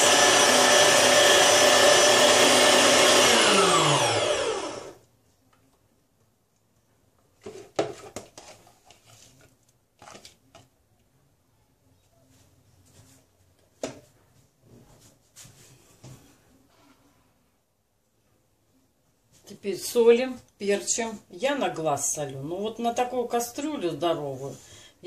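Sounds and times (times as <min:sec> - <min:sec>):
electric meat grinder running: 0:00.0 - 0:05.0.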